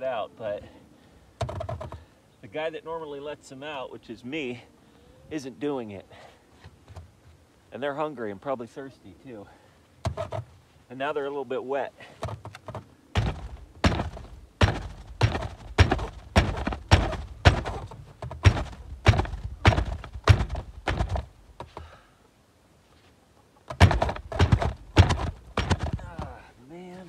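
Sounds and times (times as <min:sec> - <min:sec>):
hand pounding on wooden door: 0:12.2 - 0:21.3, 0:23.7 - 0:26.4.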